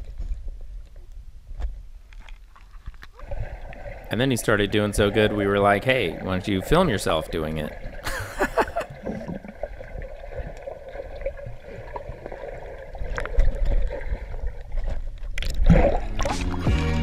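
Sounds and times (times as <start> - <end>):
underwater water sloshing and bubbling: 0.0 - 16.7
water splashing: 2.2 - 17.0
background music: 16.1 - 17.0.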